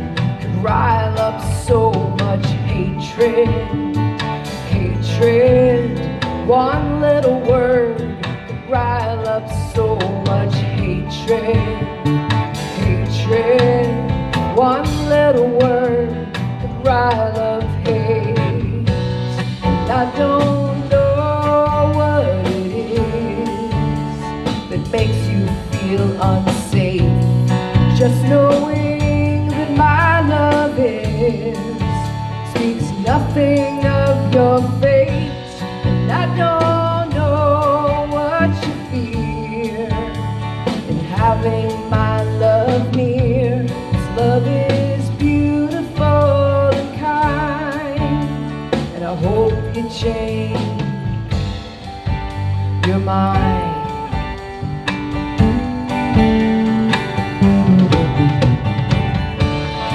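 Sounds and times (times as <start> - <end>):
woman singing: 0.0 - 51.3, 52.8 - 58.2
drum kit: 0.0 - 59.9
strummed acoustic guitars: 51.0 - 59.9.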